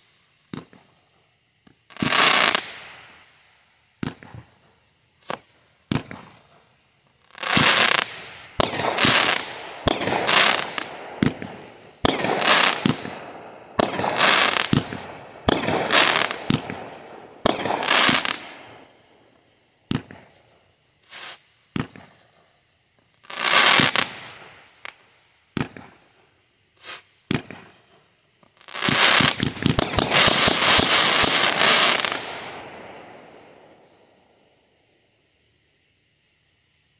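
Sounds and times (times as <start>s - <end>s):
firework pops: 0.0s - 1.0s, 4.0s - 4.5s, 5.2s - 6.5s, 7.5s - 13.2s, 19.9s - 20.4s, 21.0s - 22.2s, 23.5s - 26.0s, 26.8s - 27.8s, 28.4s - 32.6s
fireworks bangs with crackle: 0.0s - 3.2s, 4.0s - 18.9s, 19.8s - 22.5s, 23.2s - 26.2s, 26.8s - 33.9s.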